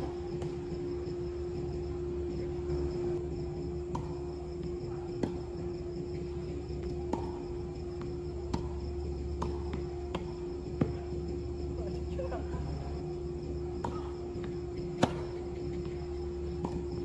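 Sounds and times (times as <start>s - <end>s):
crickets trilling: 0.0s - 17.0s
steady hum: 0.0s - 17.0s
tennis ball bouncing: 3.6s - 11.6s, 13.6s - 17.0s
tennis racket striking ball: 8.0s - 11.0s, 13.8s - 15.5s.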